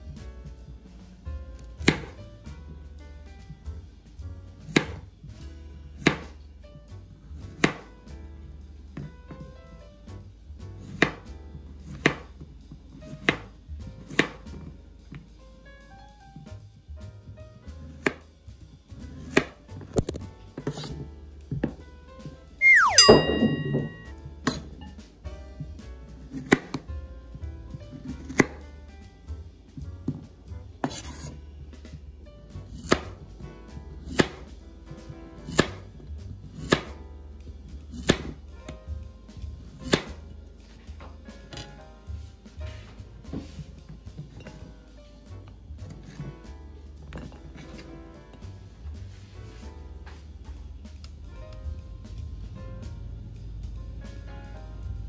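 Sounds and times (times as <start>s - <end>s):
background music: 0.0s - 55.0s
knife slicing zucchini: 1.6s - 2.2s, 4.6s - 5.0s, 6.0s - 6.4s, 7.4s - 7.9s, 10.8s - 11.2s, 11.8s - 12.4s, 13.0s - 14.5s, 19.0s - 21.0s, 26.3s - 26.8s, 27.9s - 28.6s, 30.8s - 31.4s, 32.6s - 33.2s, 33.9s - 34.5s, 35.4s - 35.9s, 36.5s - 37.0s, 37.8s - 38.4s, 39.6s - 40.8s
blade knocking on cutting board: 7.6s - 7.8s, 14.1s - 14.4s.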